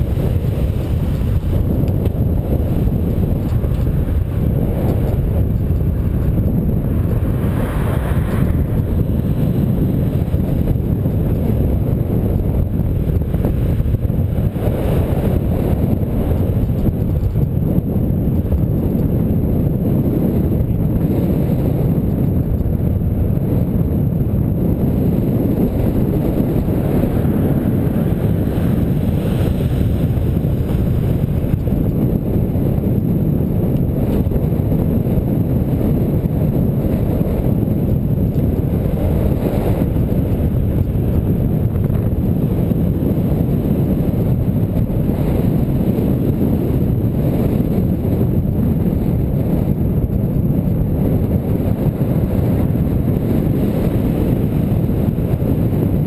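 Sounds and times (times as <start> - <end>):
traffic noise: 0.0 - 17.4
wind buffeting microphone: 0.0 - 56.0.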